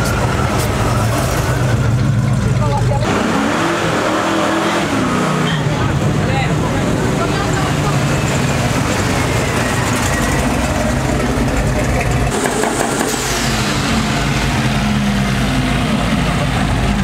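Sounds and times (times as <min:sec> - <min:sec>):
loud car engine pulling away: 0:00.0 - 0:17.0
small car engine revving: 0:03.0 - 0:06.0.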